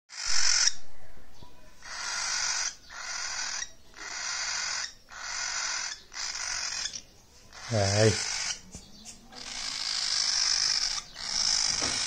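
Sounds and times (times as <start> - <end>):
cockatiel hissing calls: 1.8 - 8.6, 9.4 - 12.0.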